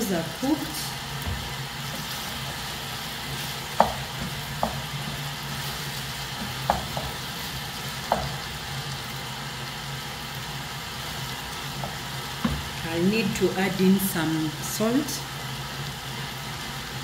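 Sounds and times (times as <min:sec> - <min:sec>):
stew sizzling in a pot: 0:00.0 - 0:17.0
wooden spoon knocking on pot: 0:03.7 - 0:05.2, 0:06.3 - 0:07.3, 0:08.0 - 0:08.5, 0:11.8 - 0:12.7.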